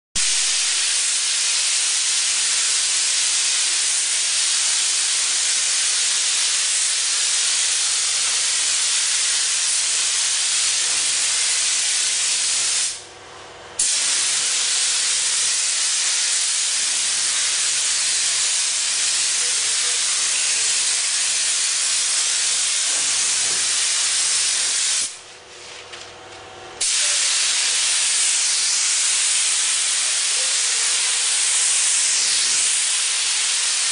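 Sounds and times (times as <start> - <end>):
paint spray gun hissing: 0.2 - 13.0, 13.8 - 25.2, 26.8 - 33.9.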